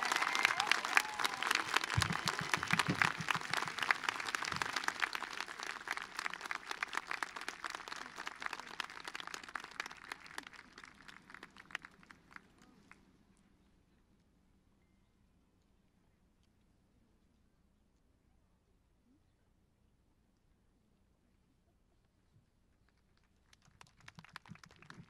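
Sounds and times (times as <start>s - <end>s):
audience applauding: 0.0s - 12.9s, 23.5s - 25.0s.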